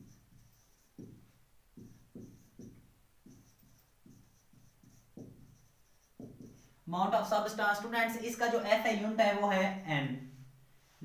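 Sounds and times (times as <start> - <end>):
marker writing on whiteboard: 0.0 - 7.9.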